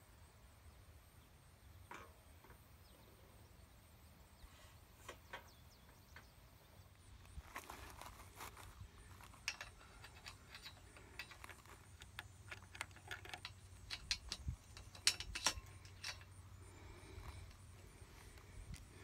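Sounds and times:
metal hardware clicking and clinking: 0:09.0 - 0:17.9
sharp metal clacks: 0:09.4 - 0:16.4.

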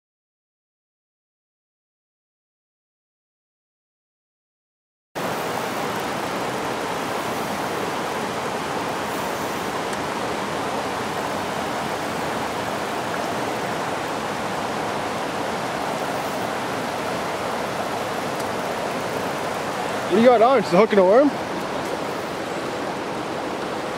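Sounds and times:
river water rushing over weir: 0:05.2 - 0:23.9.

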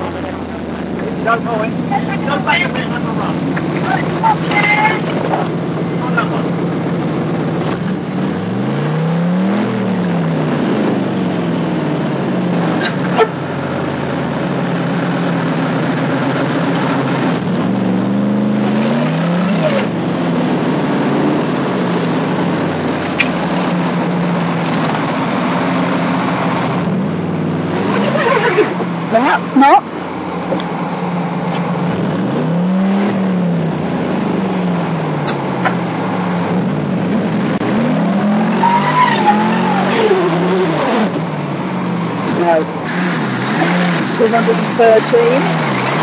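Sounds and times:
car engine revving under load: 0:00.0 - 0:46.0.

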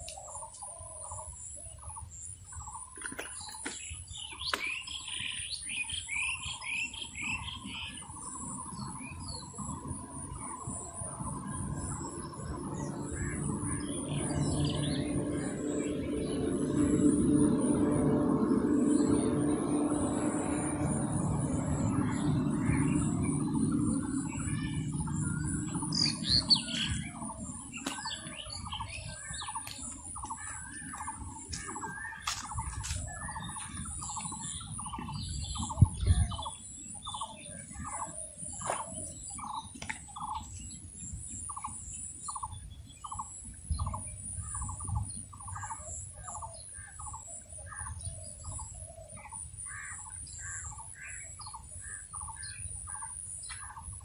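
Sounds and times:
birds calling: 0:00.0 - 0:54.0
low rumble: 0:08.2 - 0:39.6.

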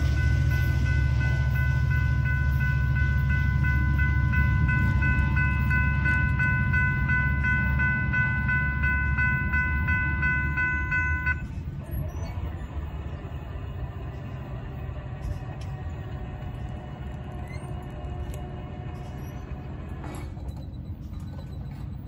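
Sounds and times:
railroad crossing bell ringing: 0:00.0 - 0:12.5
steady low rumble: 0:00.0 - 0:21.1.

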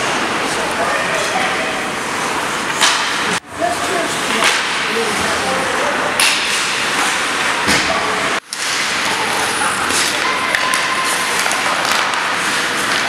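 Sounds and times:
hockey sticks and puck knocking: 0:06.2 - 0:07.1, 0:09.9 - 0:13.0.

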